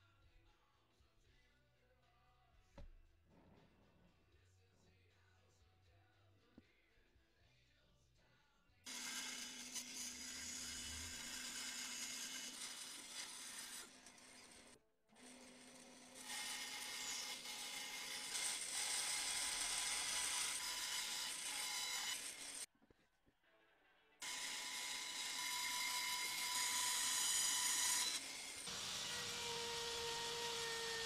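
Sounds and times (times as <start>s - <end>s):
bandsaw cutting wood: 8.9s - 22.7s, 24.2s - 31.0s.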